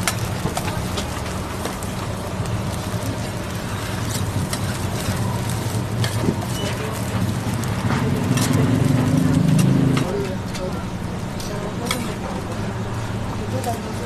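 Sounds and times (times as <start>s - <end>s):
spatula scraping on steel griddle: 2.8s - 10.2s.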